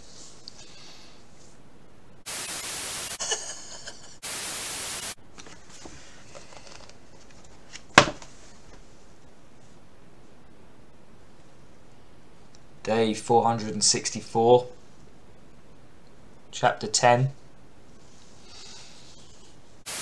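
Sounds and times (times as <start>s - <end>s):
static hiss bursts: 2.2s - 5.2s, 18.0s - 20.0s.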